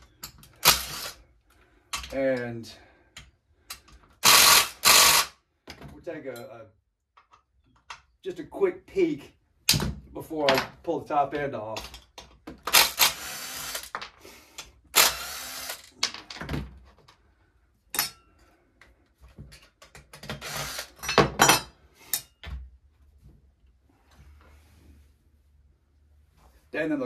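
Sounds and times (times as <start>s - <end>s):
parts clunking and clicking: 0.0s - 0.9s, 1.5s - 2.5s, 3.1s - 4.2s, 5.6s - 8.2s, 9.6s - 12.8s, 18.8s - 20.4s
impact driver bursts: 0.6s - 1.2s, 4.2s - 5.4s, 12.7s - 13.9s, 15.0s - 15.9s, 20.4s - 21.0s.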